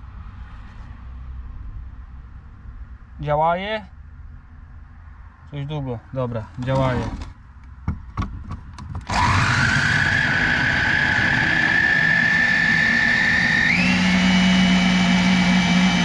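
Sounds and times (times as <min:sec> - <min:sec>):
food chopper clicks: 0:09.1 - 0:16.0
food chopper motor whine: 0:09.1 - 0:16.0.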